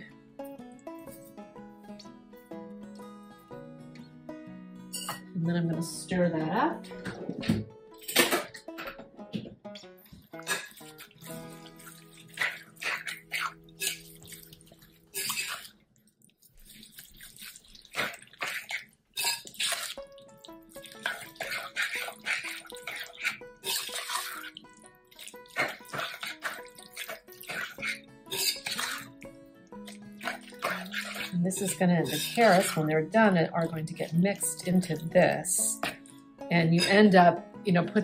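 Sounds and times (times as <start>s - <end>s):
soft background music: 0.0s - 15.6s, 19.2s - 38.0s
spoon stirring wet mixture: 9.9s - 37.2s
spoon scraping glass bowl: 10.4s - 15.7s, 18.0s - 20.0s, 20.9s - 24.6s, 25.2s - 29.1s, 29.8s - 33.0s.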